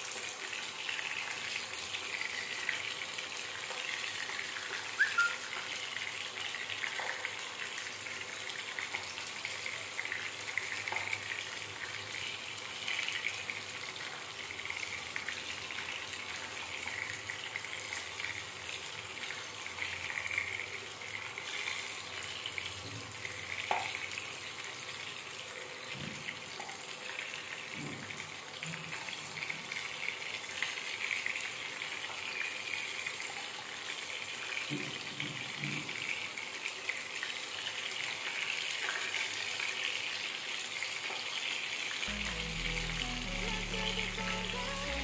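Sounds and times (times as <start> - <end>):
food sizzling in hot oil: 0.0 - 26.5.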